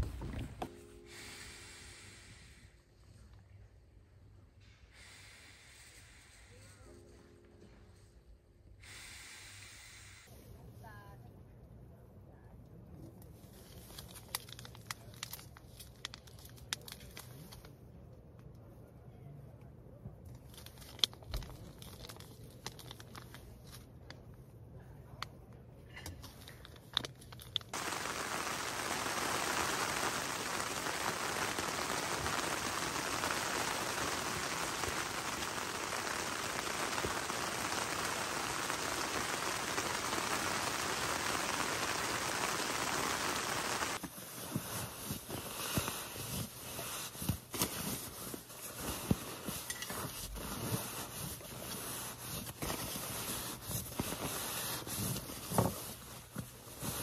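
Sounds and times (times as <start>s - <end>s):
steady hiss: 0.0s - 3.3s, 4.4s - 8.0s, 8.6s - 10.4s, 27.7s - 57.0s
crinkling and clicking handling: 13.6s - 17.8s, 20.2s - 24.2s, 25.9s - 27.9s.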